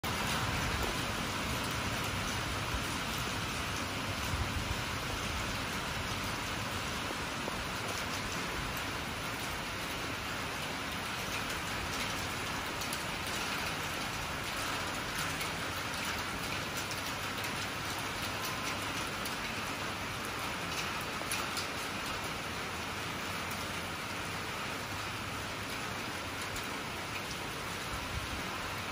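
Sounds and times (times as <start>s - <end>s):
steady rain falling: 0.0s - 28.9s
raindrop ticks: 10.6s - 22.3s, 26.4s - 27.5s.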